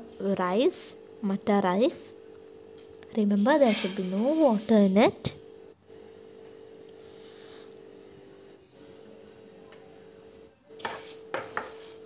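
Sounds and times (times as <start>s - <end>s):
gas burner hum and hiss: 1.8s - 12.0s
spatula scraping rice in pan: 10.8s - 12.0s.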